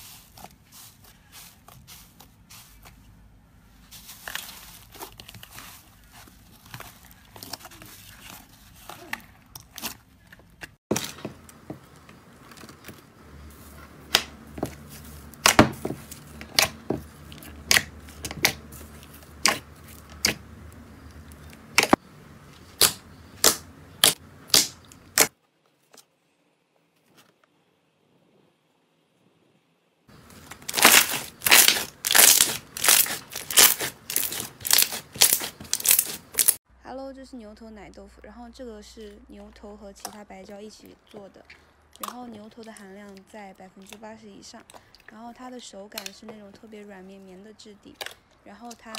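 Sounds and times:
slime squeezed with sticky rustling: 30.1s - 36.6s.

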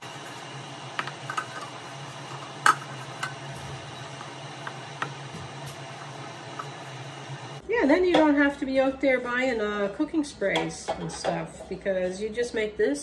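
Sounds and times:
pastry brush tapping metal pan: 7.9s - 12.0s.

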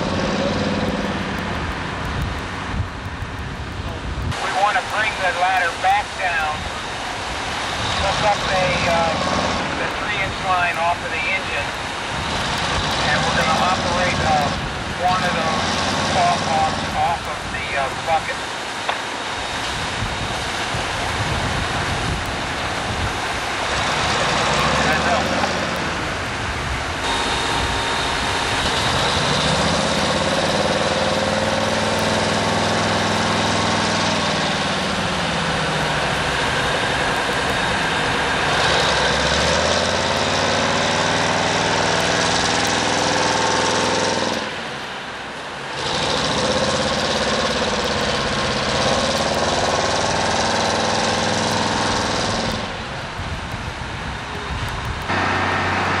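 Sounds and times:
boat engine running: 0.0s - 18.9s, 19.5s - 44.8s, 45.7s - 53.4s, 54.2s - 56.0s.

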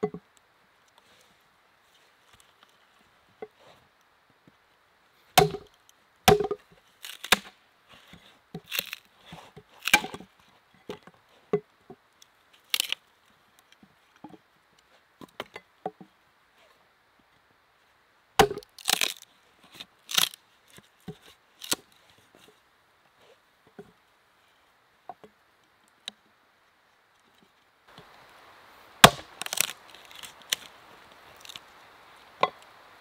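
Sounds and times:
axe chopping into log: 5.4s - 5.7s, 6.3s - 6.6s, 7.2s - 7.5s, 9.8s - 10.2s, 18.4s - 19.1s, 29.0s - 29.7s.

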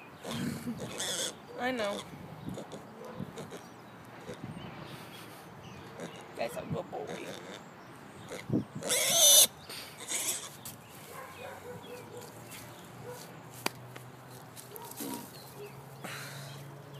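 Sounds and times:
piglet squealing: 0.2s - 2.8s, 8.3s - 10.6s.

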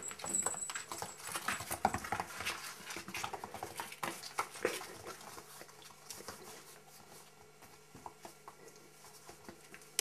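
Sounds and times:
kitten paws pattering and scratching: 0.0s - 10.0s.

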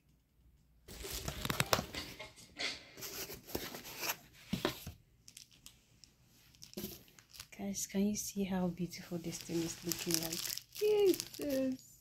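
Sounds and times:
plastic and paperboard crinkling: 0.9s - 2.3s, 3.0s - 7.6s, 8.9s - 11.8s.

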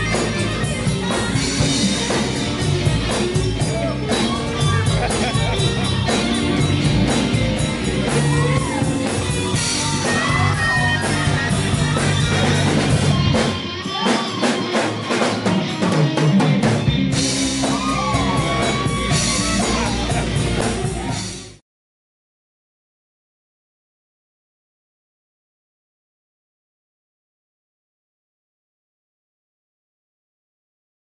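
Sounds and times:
electric guitar lead notes bending: 0.0s - 21.6s
live band playing: 0.0s - 21.6s.

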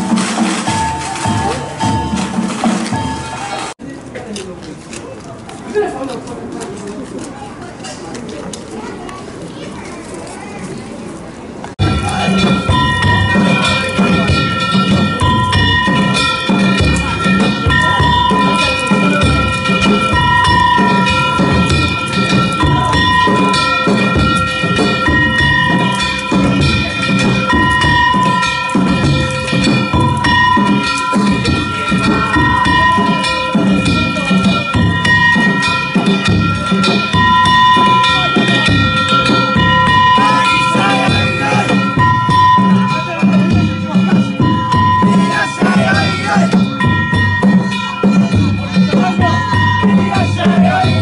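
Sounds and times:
taiko drum: 0.0s - 3.7s, 11.8s - 51.0s
hand gongs ringing: 11.8s - 51.0s.

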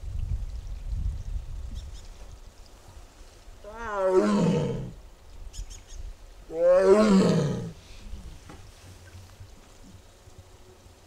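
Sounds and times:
tiger roaring: 3.6s - 5.0s, 6.5s - 7.8s.

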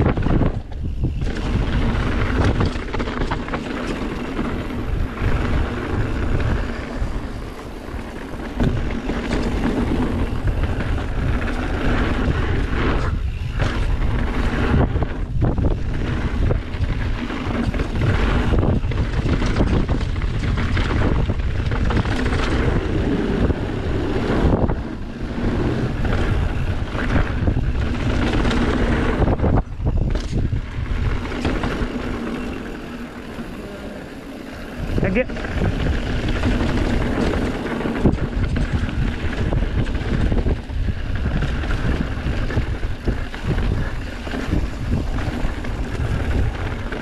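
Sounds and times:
bike tyres rumbling on dirt: 0.0s - 47.0s
wind rushing over microphone: 0.0s - 47.0s.

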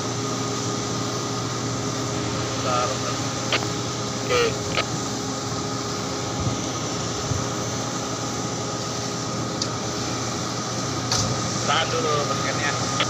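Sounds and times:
heavy machinery drone: 0.0s - 13.0s.

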